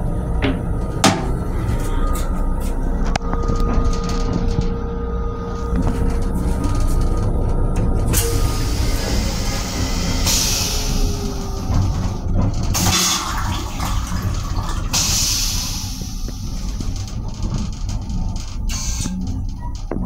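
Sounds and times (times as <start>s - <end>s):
train running rumble: 0.0s - 20.0s
toilet flushing hiss: 8.2s - 11.8s, 12.7s - 16.6s.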